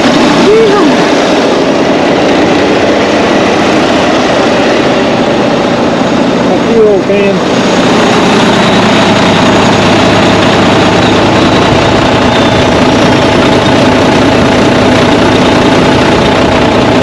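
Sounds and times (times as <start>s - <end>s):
diesel engine idling: 0.0s - 17.0s.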